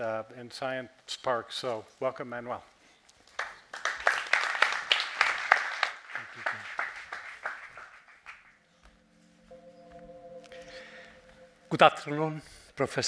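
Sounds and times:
audience applauding: 3.3 - 8.6.

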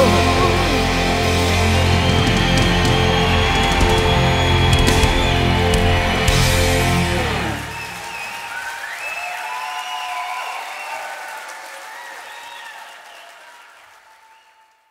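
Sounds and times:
rock band final chord: 0.0 - 8.0
audience applauding: 0.0 - 14.9.

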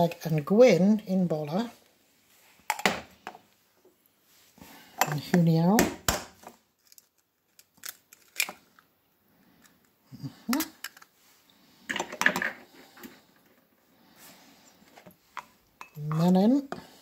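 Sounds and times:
eggshell crackling apart: 6.8 - 8.9.

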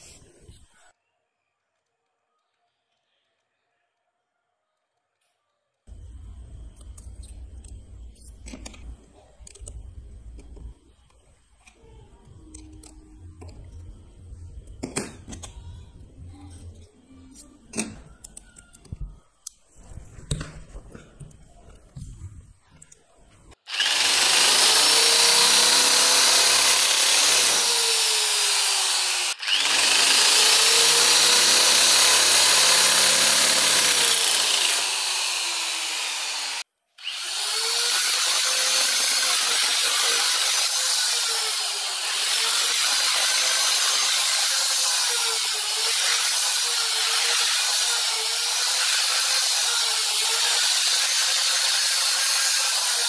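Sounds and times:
quiet clicks and handling noise: 16.6 - 23.5
electric metal shear cutting: 23.7 - 53.0.

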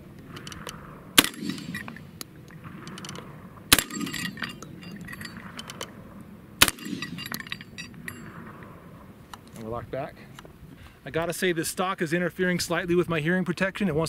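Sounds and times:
shotgun shots with echo: 0.4 - 7.6
metallic clinks of steel targets: 1.2 - 2.2, 2.9 - 5.9, 6.6 - 8.4.

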